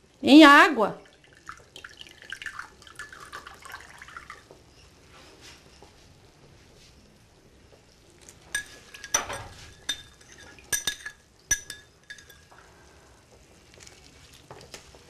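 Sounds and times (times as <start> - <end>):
spoon clinking against glass bowl: 8.5 - 12.5.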